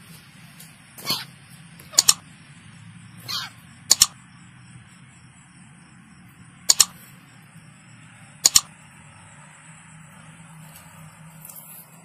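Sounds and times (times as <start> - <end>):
night insects droning: 0.0 - 12.0
sharp double clicks: 1.8 - 2.3, 3.3 - 4.2, 6.6 - 7.0, 8.4 - 8.8.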